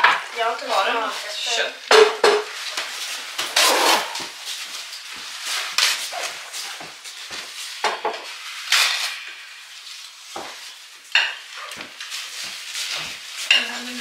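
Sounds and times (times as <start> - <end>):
cutlery scraping dishes: 3.4 - 4.4, 10.4 - 12.2, 12.8 - 14.0.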